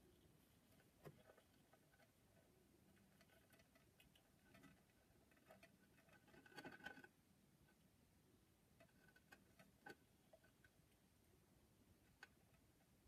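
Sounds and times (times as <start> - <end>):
soft rustle: 0.0 - 7.8.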